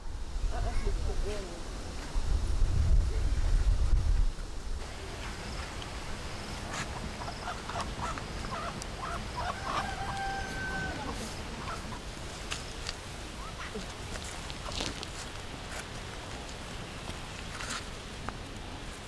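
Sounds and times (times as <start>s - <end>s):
rooster crowing: 7.3s - 11.8s.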